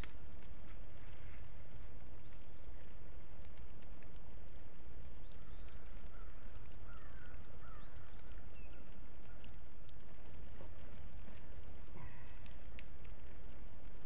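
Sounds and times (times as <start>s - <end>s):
light crackling: 0.0s - 14.0s
faint bird chirps: 1.8s - 3.1s, 5.1s - 9.6s.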